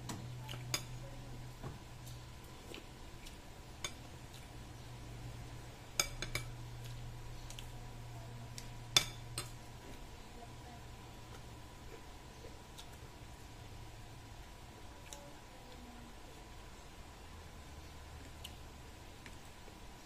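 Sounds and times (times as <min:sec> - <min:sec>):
cutlery clinking on ceramic: 0:06.0 - 0:06.6, 0:09.0 - 0:09.5.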